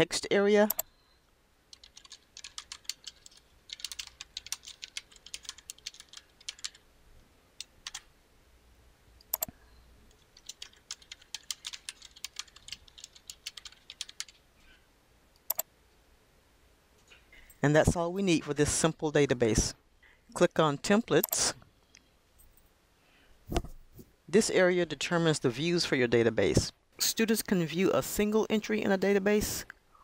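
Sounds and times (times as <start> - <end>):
typing on computer keyboard: 1.7 - 6.8, 7.6 - 8.1, 10.1 - 14.4
single keyboard clicks: 15.5 - 15.7.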